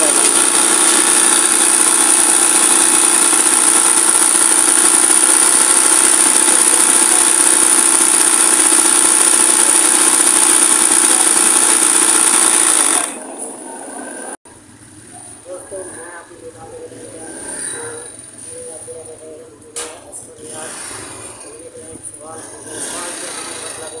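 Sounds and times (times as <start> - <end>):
sewing machine whining: 0.0 - 14.3, 22.4 - 24.0.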